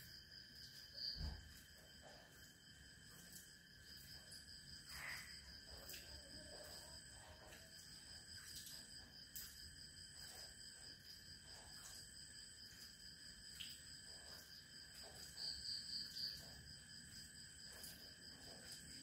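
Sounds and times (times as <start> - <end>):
night insects trilling: 0.0 - 19.0
pulsing insect chirp: 0.0 - 19.0
faint ticks: 13.5 - 15.4.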